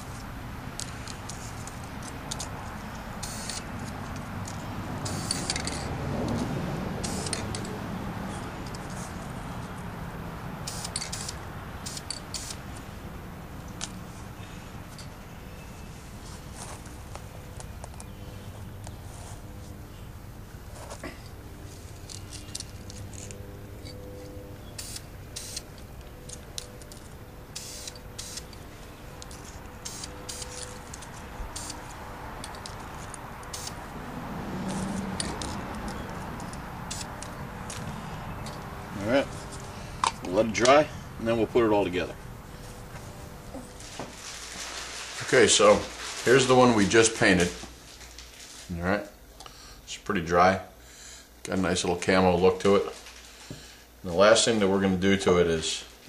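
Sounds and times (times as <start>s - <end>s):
spray paint can hissing: 3.2s - 3.6s, 7.0s - 7.5s, 10.6s - 12.6s, 24.8s - 25.6s, 27.5s - 28.5s, 29.8s - 30.6s, 31.5s - 32.0s, 33.4s - 33.8s, 36.9s - 37.1s.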